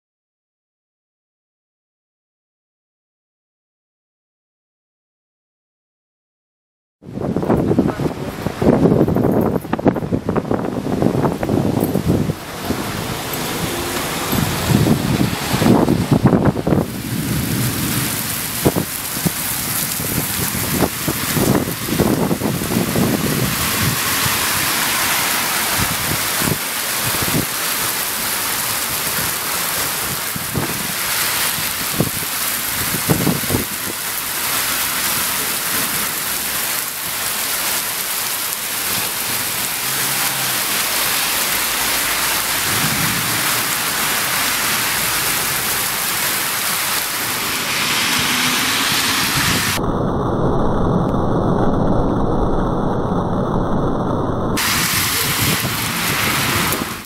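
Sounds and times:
heavy rain pouring on road: 7.1 - 57.0
thunder rumbling: 7.1 - 57.0.

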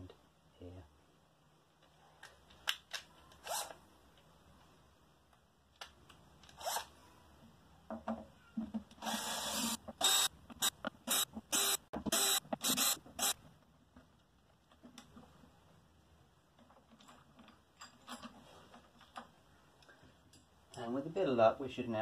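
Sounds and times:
cordless drill motor: 3.4 - 3.8, 6.6 - 6.9, 9.0 - 13.4.

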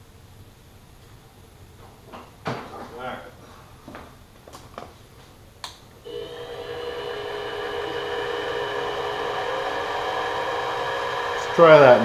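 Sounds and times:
mill motor whining: 6.0 - 12.0.

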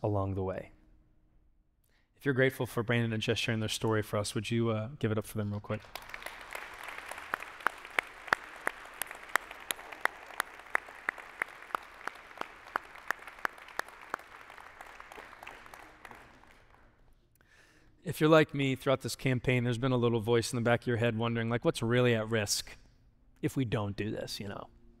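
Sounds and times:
congregation applauding: 5.6 - 17.0
loud close claps: 5.7 - 17.0.

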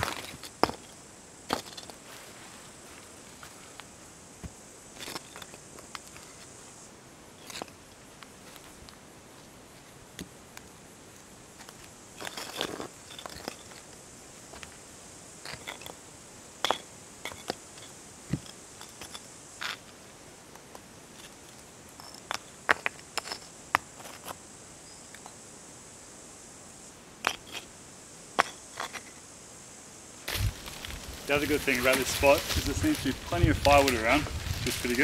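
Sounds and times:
stones scraping on sandy dirt: 0.0 - 6.6, 7.4 - 8.8, 11.5 - 14.8, 15.4 - 16.0, 16.6 - 20.0, 20.6 - 24.4, 27.2 - 27.7, 28.4 - 29.2, 30.3 - 35.0.

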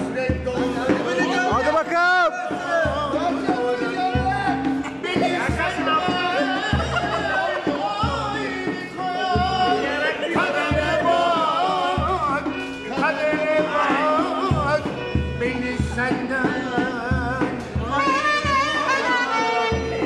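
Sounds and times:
low beat: 0.0 - 20.0
man singing: 0.0 - 20.0
clarinet melody: 17.8 - 20.0.

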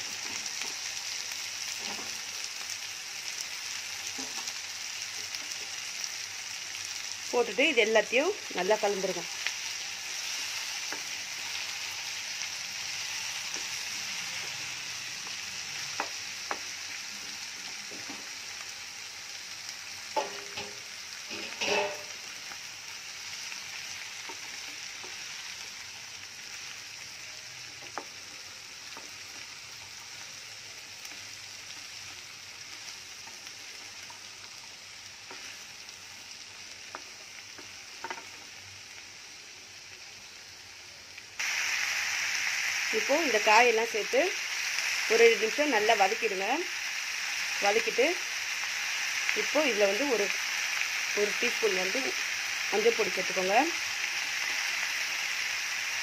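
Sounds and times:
vegetables sizzling in oil: 0.0 - 56.0
spatula scraping a pan: 20.2 - 22.2.

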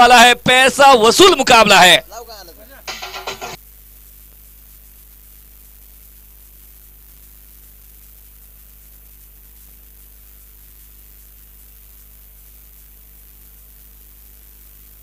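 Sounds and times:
electrical hum: 0.0 - 15.0
hiss: 4.7 - 15.0.

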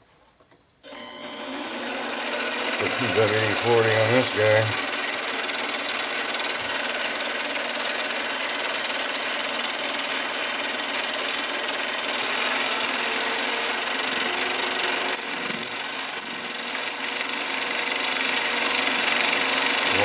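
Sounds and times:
lathe cutting steel: 14.0 - 20.0
high-pitched squeals: 15.2 - 18.3.

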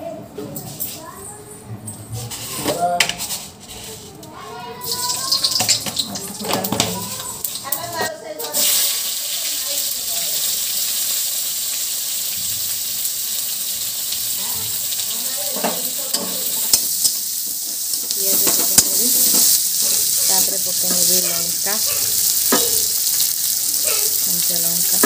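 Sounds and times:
onions sizzling in oil: 4.3 - 25.0
metal spatula scraping a pan: 17.8 - 25.0.

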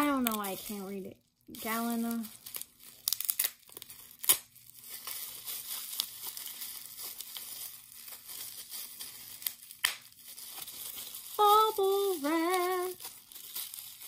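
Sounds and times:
bubble wrap crinkling: 0.0 - 14.0.

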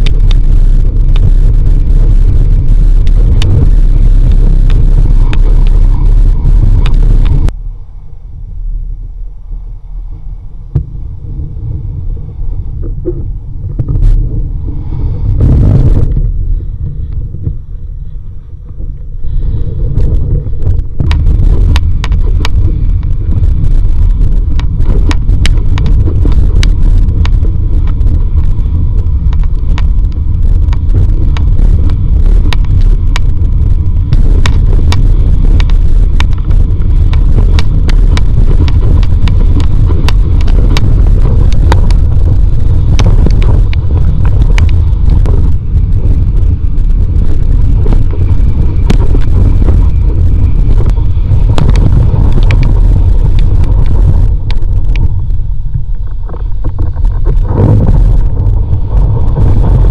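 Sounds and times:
heavy wind rumble: 0.0 - 59.9.

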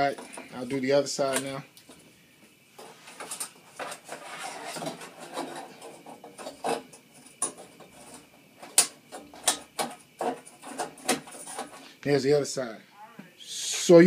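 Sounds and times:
plastic grid scraping and rubbing: 2.8 - 11.9.

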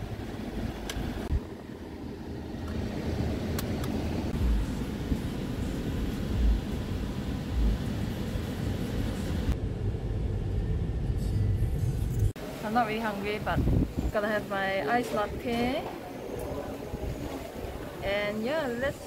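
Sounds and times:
road and engine rumble in car: 0.0 - 12.4.

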